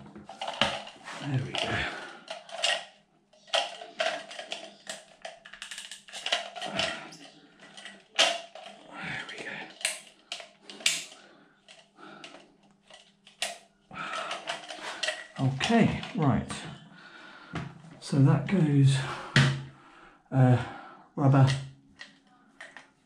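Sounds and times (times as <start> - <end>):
tools and fittings clicking and scraping: 0.1 - 16.8, 21.4 - 23.0.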